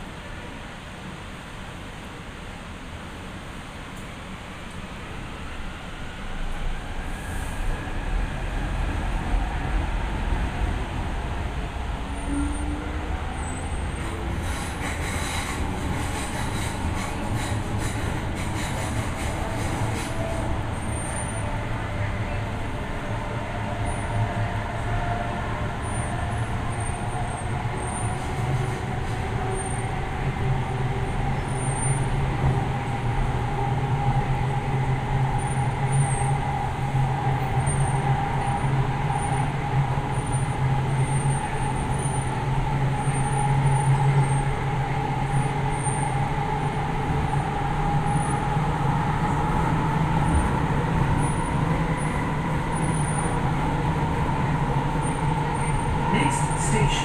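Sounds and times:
train rumbling with whine: 0.0 - 57.0.

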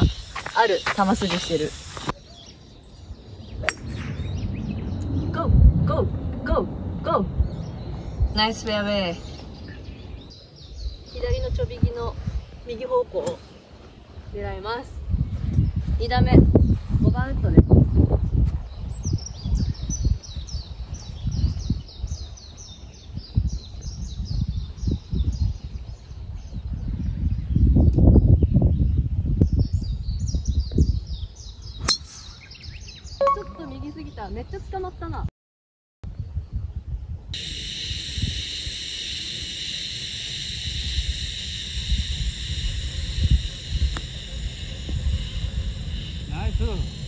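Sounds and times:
high outdoor hiss: 0.0 - 4.9, 37.4 - 47.0
songbird chirping: 0.0 - 35.2
wind buffeting microphone: 0.0 - 35.3, 36.0 - 38.5, 40.3 - 47.0
low gusty rumble: 2.7 - 35.3, 40.4 - 47.0.

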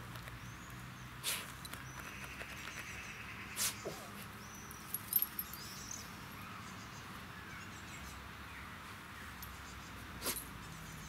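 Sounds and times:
faint birds chirping: 0.1 - 11.0.

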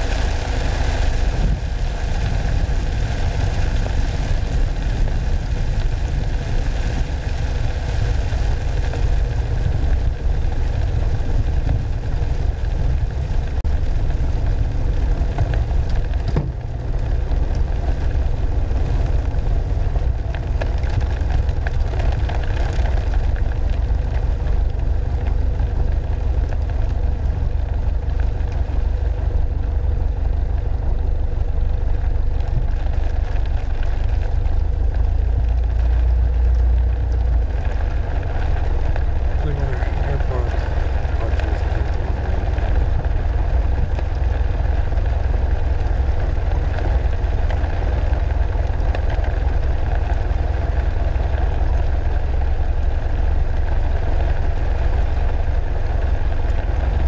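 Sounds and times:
propeller engine running: 37.0 - 57.0.

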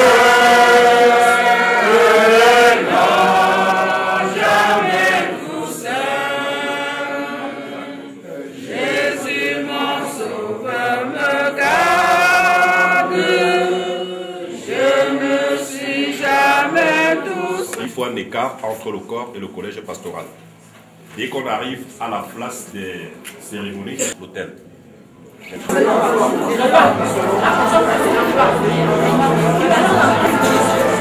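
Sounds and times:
group singing a hymn: 0.0 - 18.2, 25.6 - 31.0.

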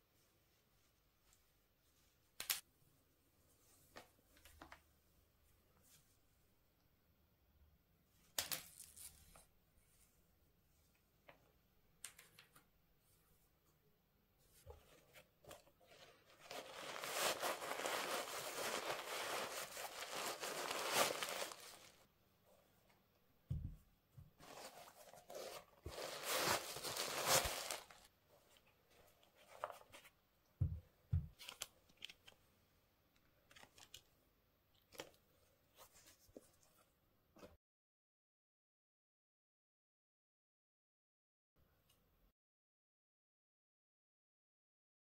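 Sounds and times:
paper packaging rustling: 14.9 - 22.0, 24.4 - 28.1, 29.3 - 30.1.

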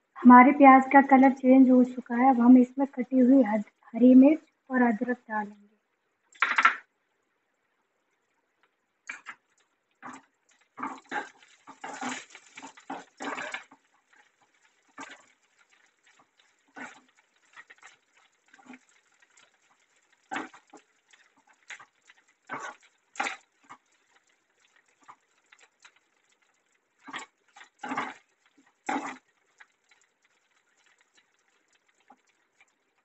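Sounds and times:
oil frying hiss: 8.7 - 33.0
spoon scraping pan: 9.1 - 26.0, 27.0 - 32.7.

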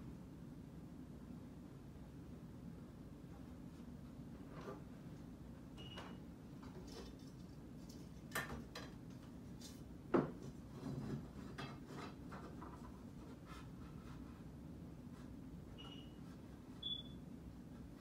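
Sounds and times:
wooden parts knocking and rubbing: 8.3 - 14.3.

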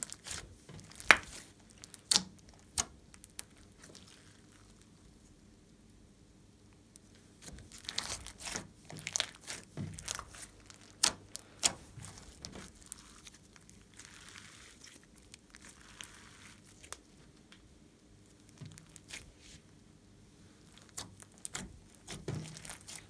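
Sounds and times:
slime squeezed crackling and popping: 0.0 - 5.1, 7.0 - 17.2, 18.2 - 19.3, 20.6 - 23.0
slime hissing: 11.5 - 16.9.

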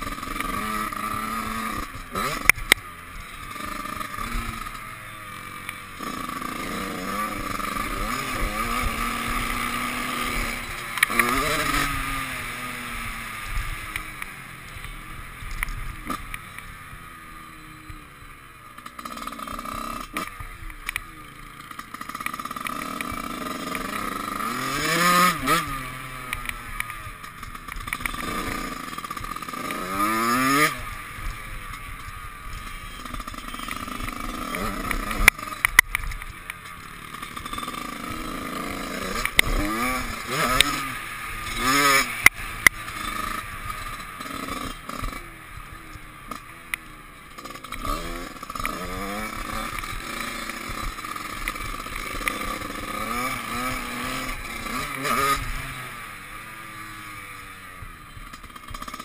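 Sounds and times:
dirt bike engine revving: 0.0 - 59.0
sharp clacks: 26.3 - 29.9, 47.4 - 55.5.

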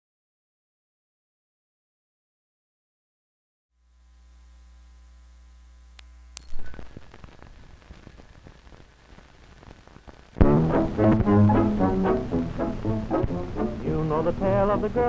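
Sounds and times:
electrical mains hum: 3.8 - 15.0
film crackle and popping: 5.8 - 13.9
music with brass: 10.4 - 14.0.

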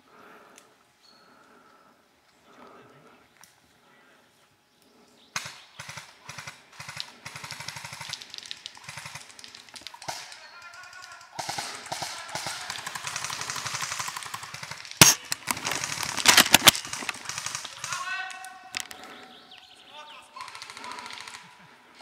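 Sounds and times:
airsoft guns firing in bursts: 5.4 - 19.2, 20.4 - 21.8
sharp loud crack: 14.3 - 16.8.

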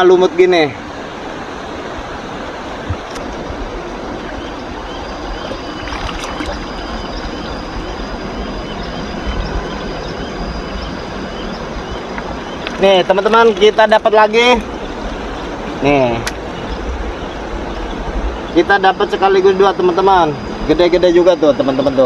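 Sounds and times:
river water flowing over rocks: 0.4 - 8.4
thin high tone with chirps: 3.8 - 22.0
splashes among stones: 5.8 - 6.6.

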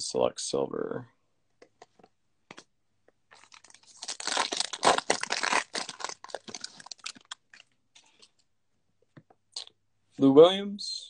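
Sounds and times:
foil wrapper tearing and crinkling: 3.3 - 7.7.

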